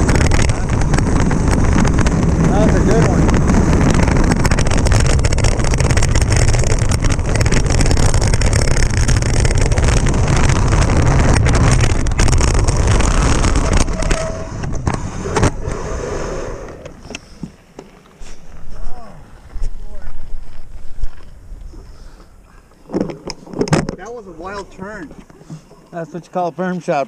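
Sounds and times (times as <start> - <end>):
bike knocks and rattles: 0.0 - 15.6
wind buffeting microphone: 0.0 - 17.2
bike tyres on dirt trail: 0.0 - 27.0.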